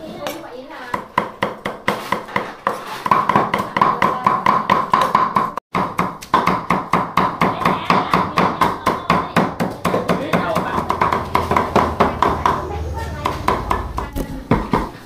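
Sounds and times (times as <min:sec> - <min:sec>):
knife chopping on cutting board: 0:00.9 - 0:12.6.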